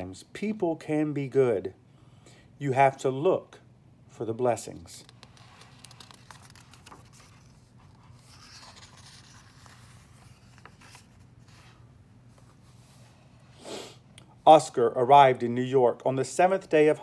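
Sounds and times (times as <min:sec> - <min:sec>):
low steady hum: 0:00.0 - 0:17.0
book pages turning: 0:04.8 - 0:13.0
soft paper clicks: 0:05.0 - 0:07.5.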